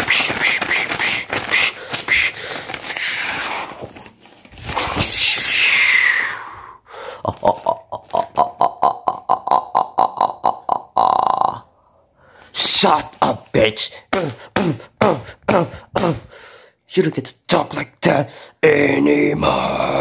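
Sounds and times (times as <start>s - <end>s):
paper flapping and rustling: 0.0s - 5.6s.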